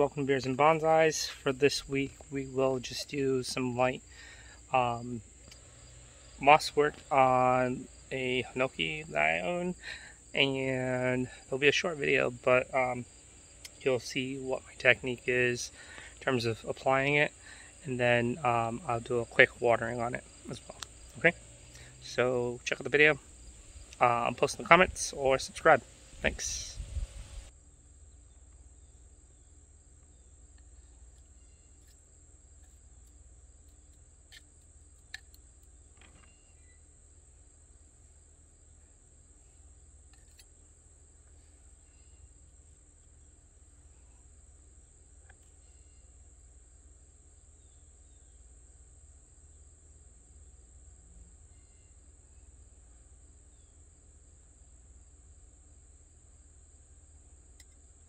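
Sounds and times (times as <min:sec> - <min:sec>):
high-pitched insect trill: 0:01.8 - 0:28.2.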